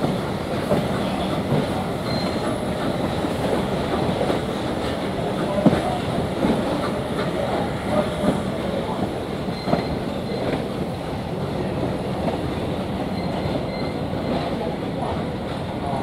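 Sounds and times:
wheels rumbling on rail: 0.0 - 16.0
faint wheel squeal: 2.0 - 2.6.

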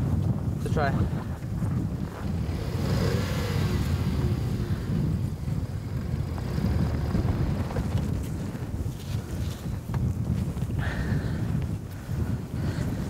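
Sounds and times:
wind noise on microphone: 0.0 - 13.0
car engine revving: 2.1 - 8.5.

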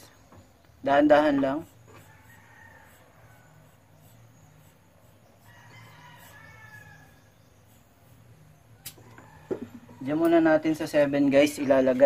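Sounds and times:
distant rooster crowing: 1.9 - 10.9.

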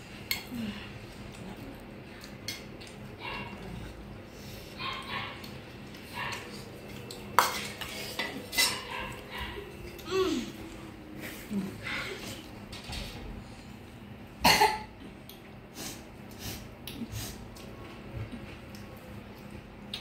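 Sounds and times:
spoon clinking on steel bowls: 6.8 - 9.2.

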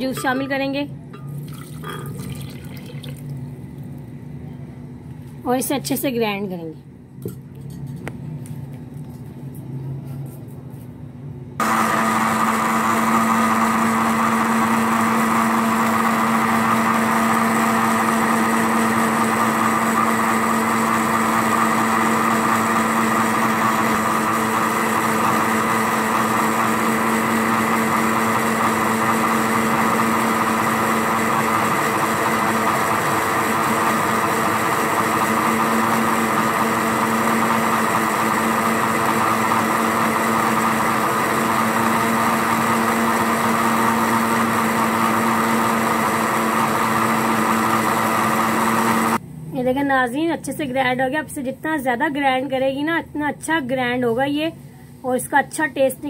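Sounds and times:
electric blender motor running: 11.6 - 49.2.

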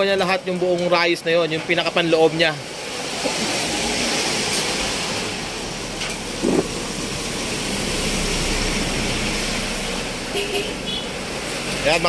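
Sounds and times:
traffic on wet road: 0.0 - 12.0.

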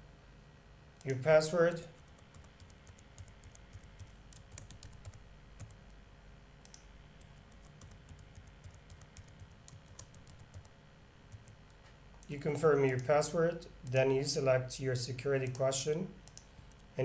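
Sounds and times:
typing on a keyboard: 2.0 - 5.8, 6.6 - 10.7, 11.3 - 11.6.

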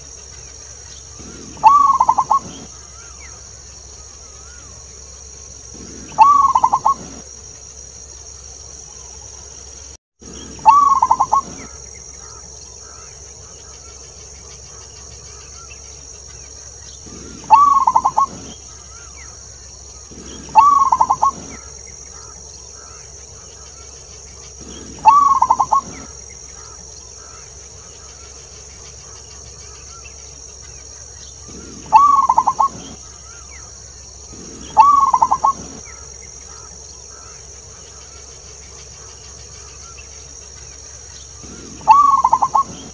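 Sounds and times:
dove cooing: 1.1 - 3.4, 5.7 - 7.2, 10.3 - 13.1, 17.0 - 19.3, 20.0 - 23.8, 24.5 - 27.4, 31.4 - 33.5, 34.2 - 37.4, 41.4 - 42.9.

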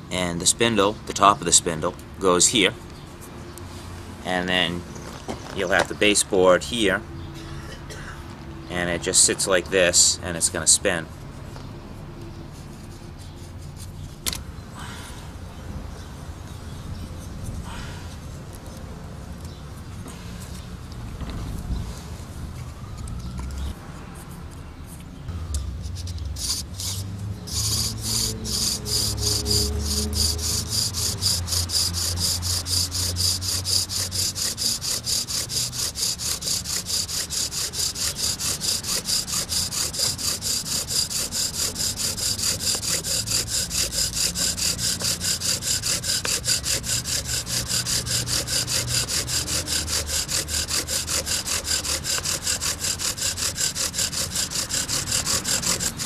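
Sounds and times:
bow drill rasping squeak: 26.4 - 56.0.

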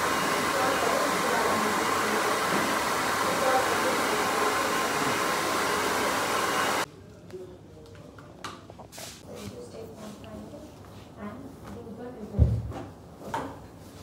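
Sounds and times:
hair dryer blowing: 0.0 - 6.9.

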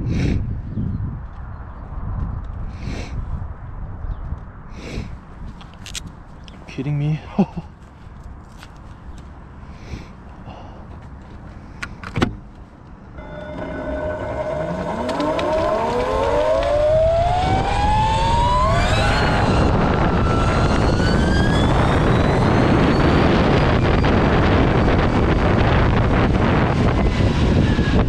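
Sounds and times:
electric motors whining: 13.2 - 25.0
rushing noise at speed: 13.2 - 28.0.

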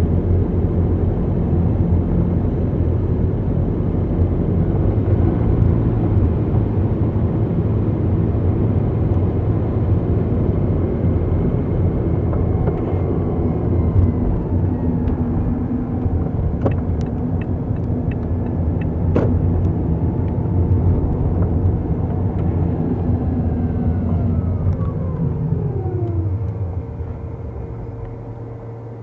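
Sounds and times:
car engine and road noise: 0.0 - 29.0
whine falling in pitch: 22.9 - 29.0.

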